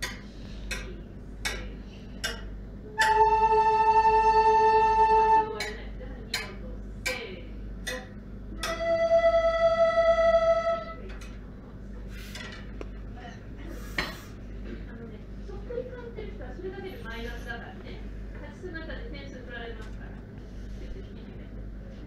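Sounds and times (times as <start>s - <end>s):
wind ensemble playing: 3.0s - 5.6s, 8.6s - 11.0s.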